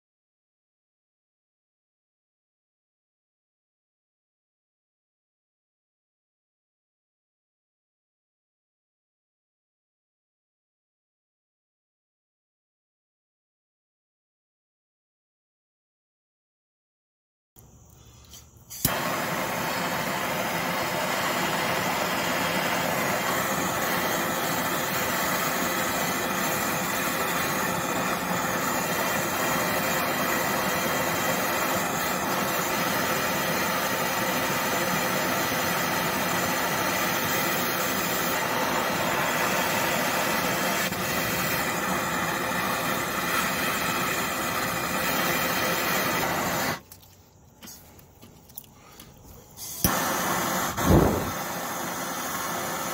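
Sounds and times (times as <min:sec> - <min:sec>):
gas torch hissing: 0:17.7 - 0:46.8, 0:49.5 - 0:52.9.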